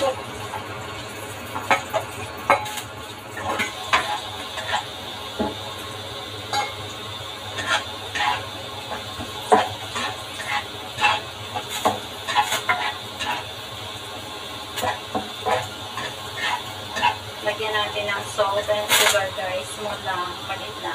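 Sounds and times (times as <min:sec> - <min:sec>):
spatula scraping a wok: 0:01.6 - 0:05.0, 0:07.5 - 0:13.8, 0:14.7 - 0:17.9, 0:18.6 - 0:19.5.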